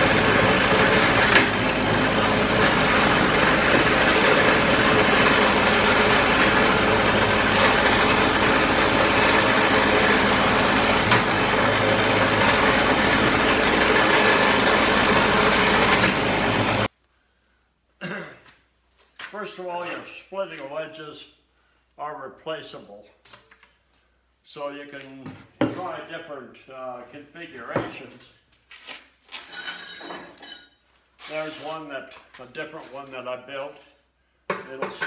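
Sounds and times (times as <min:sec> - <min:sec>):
small gasoline engine running: 0:00.0 - 0:16.9.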